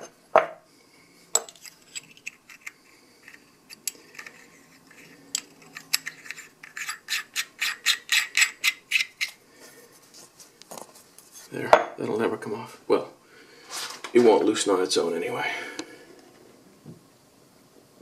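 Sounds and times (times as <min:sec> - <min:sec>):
metal cap screwing scrapes and clicks: 0:01.4 - 0:09.4.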